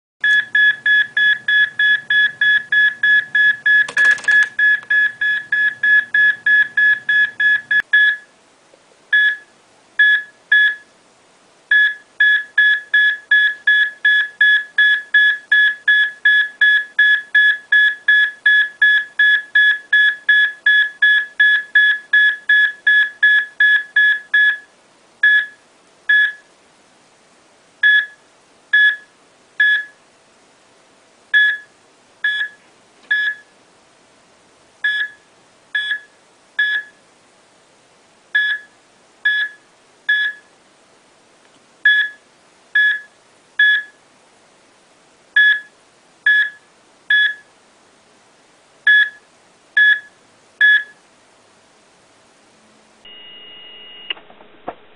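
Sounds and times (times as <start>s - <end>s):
heart monitor beeping: 0.2s - 8.3s, 31.4s - 33.5s, 34.8s - 35.2s, 35.8s - 37.0s, 39.3s - 40.4s, 45.4s - 45.7s, 49.8s - 51.0s.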